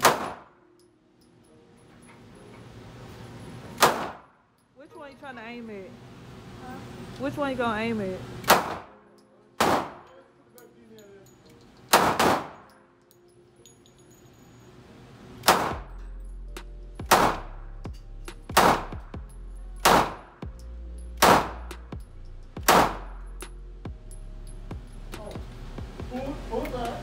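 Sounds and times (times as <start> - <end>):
pistol shots with echo: 0.0 - 0.7, 3.8 - 4.4, 8.4 - 9.0, 9.6 - 10.1, 11.9 - 12.8, 15.4 - 15.9, 17.0 - 17.5, 18.5 - 19.0, 19.8 - 20.4, 21.2 - 21.6, 22.6 - 23.1.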